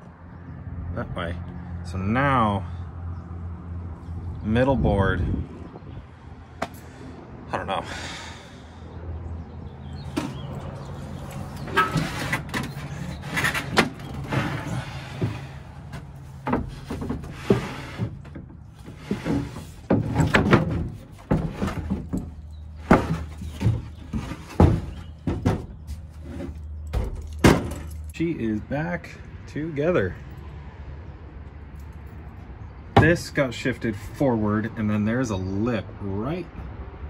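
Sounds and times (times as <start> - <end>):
plywood boards scraping on truck bed: 10.0 - 27.8.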